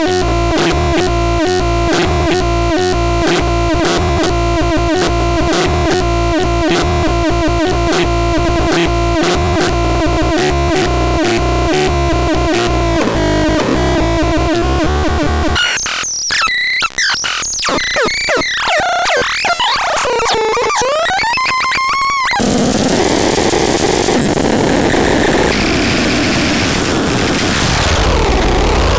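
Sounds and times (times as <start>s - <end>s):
synthesizer drone: 0.0s - 15.6s, 22.3s - 28.9s
synthesizer stuttering pulse: 0.0s - 15.9s, 20.8s - 28.9s.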